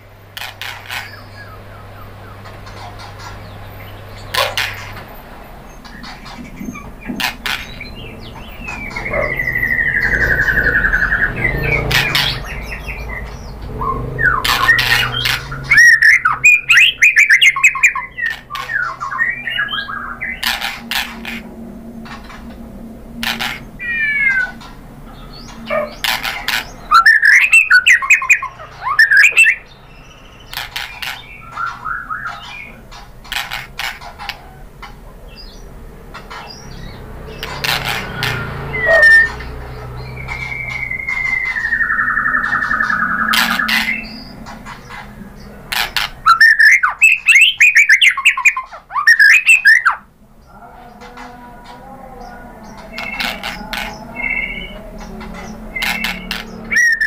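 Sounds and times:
songbird singing whistles and trills: 5.8 - 21.4, 23.3 - 32.8, 38.2 - 50.1, 52.7 - 57.0.

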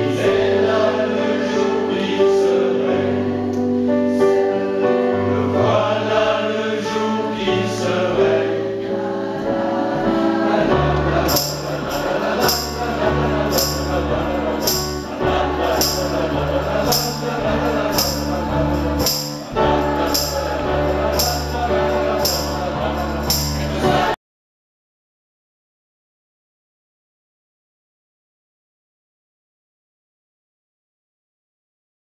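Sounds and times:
choir singing: 0.0 - 24.2
electric keyboard: 0.0 - 24.2
bass line: 10.5 - 24.2
high jingling beat: 10.5 - 24.2.

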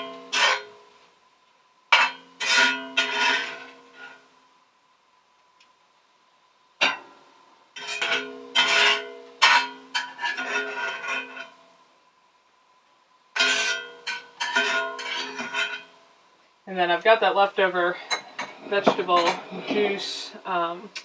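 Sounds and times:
utensils scraping cast iron pan: 0.0 - 0.8, 1.9 - 4.2, 7.8 - 11.6, 13.4 - 16.0.

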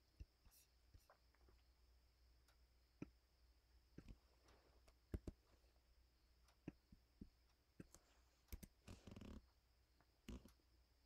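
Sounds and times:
mouse and keyboard clicks: 7.8 - 9.4.

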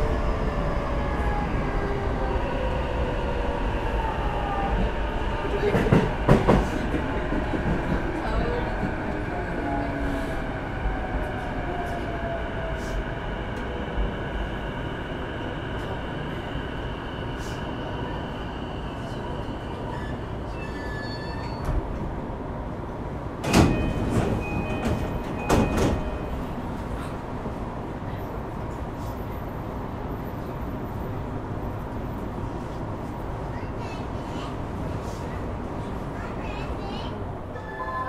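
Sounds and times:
train running sound: 4.7 - 10.3.

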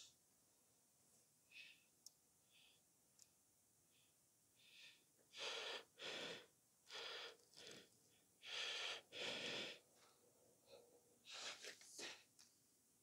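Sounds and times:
person breathing hard: 3.9 - 12.3.

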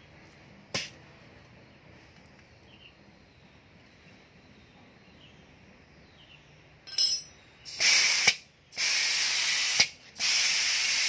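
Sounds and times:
spray gun air hissing bursts: 7.7 - 11.0.

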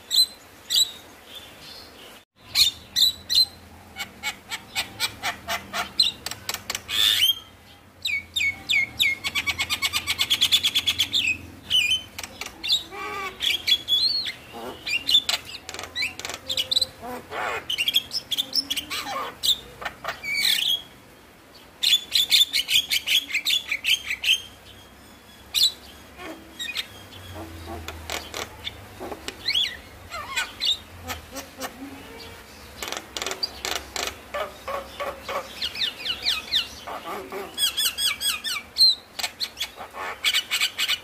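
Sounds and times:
bird chattering and whistling: 2.5 - 7.5, 8.1 - 20.9, 21.8 - 41.0.

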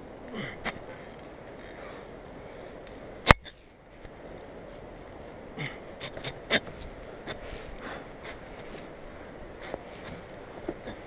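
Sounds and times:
metal clicks of climbing hardware: 0.6 - 1.8, 5.6 - 11.0.

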